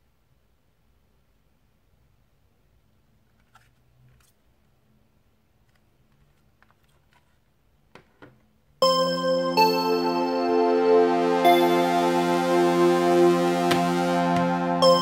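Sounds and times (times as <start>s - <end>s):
electronic keyboard music: 8.8s - 15.0s.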